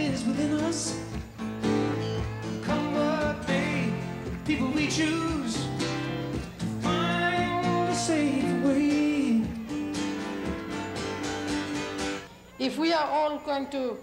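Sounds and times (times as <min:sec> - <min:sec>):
man singing: 0:00.0 - 0:01.2, 0:02.6 - 0:09.9
strummed acoustic guitar: 0:00.0 - 0:12.3.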